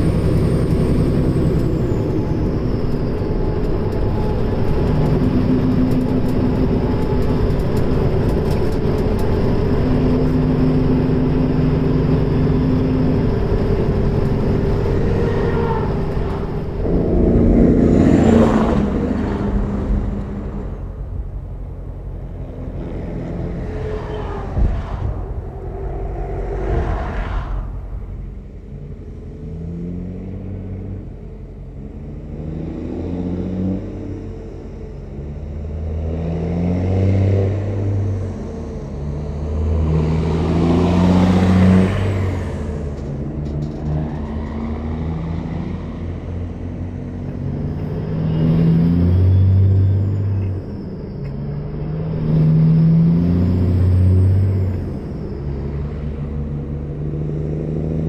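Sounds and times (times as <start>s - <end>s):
truck diesel engines accelerating: 0.0s - 58.0s
tyre and road noise: 0.0s - 58.0s.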